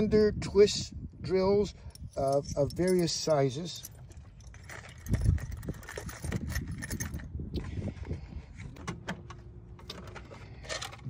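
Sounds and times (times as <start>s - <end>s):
metal drill bits clinking: 1.9s - 7.3s.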